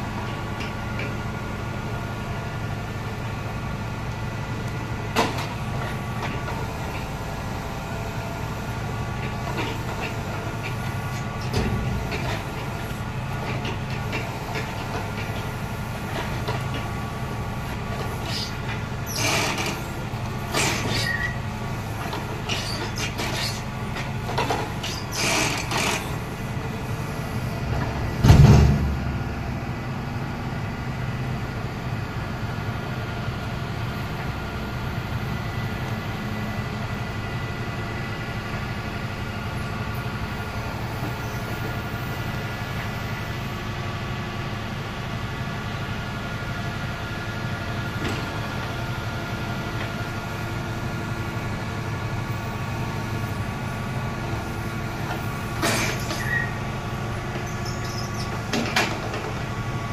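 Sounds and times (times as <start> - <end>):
truck engine running: 0.0 - 59.9
heavy thump: 27.7 - 29.7.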